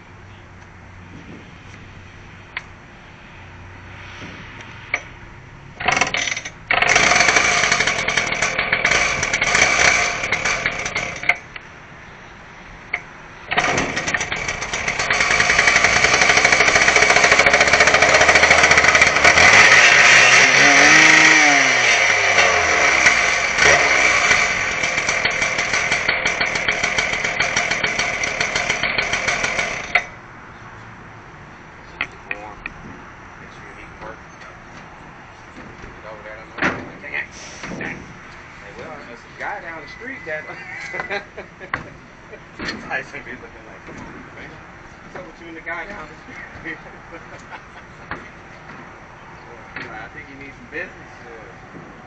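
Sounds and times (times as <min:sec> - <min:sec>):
power tool running: 0:05.8 - 0:11.4, 0:13.5 - 0:30.2.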